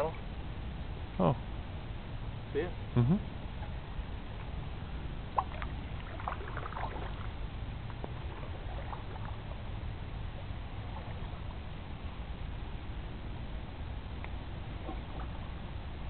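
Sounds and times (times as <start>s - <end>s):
low rumble: 0.0s - 16.0s
paddle dipping in water: 5.4s - 11.9s, 14.7s - 15.6s.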